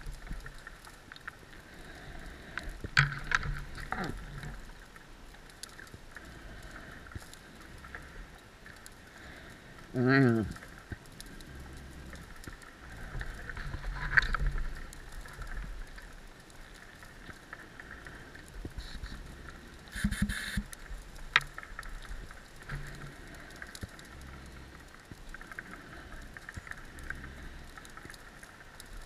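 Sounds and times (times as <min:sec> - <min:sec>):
underwater fine crackling: 0:00.0 - 0:29.0
burst of noise: 0:19.9 - 0:20.7.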